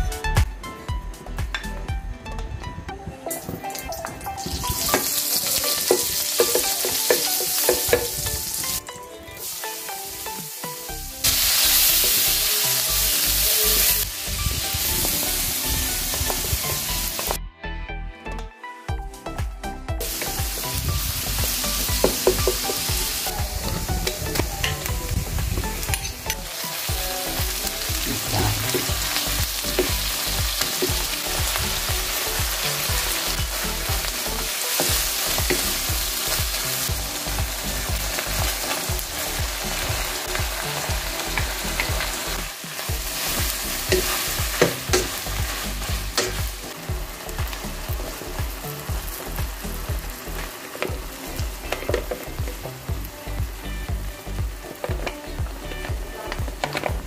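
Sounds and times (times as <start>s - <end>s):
food sizzling in hot oil: 3.4s - 8.8s, 9.4s - 17.4s, 20.0s - 57.0s
spatula scraping wok: 25.6s - 36.9s.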